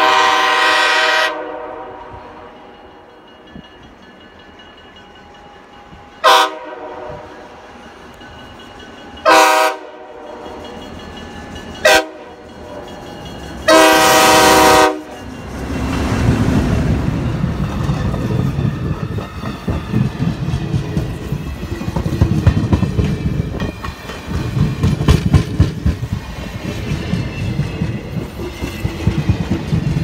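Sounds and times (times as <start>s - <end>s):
locomotive horn blasts: 0.0s - 2.5s, 6.2s - 7.4s, 9.3s - 10.5s, 11.8s - 12.4s, 13.7s - 15.2s
passenger coaches rolling: 0.0s - 30.0s.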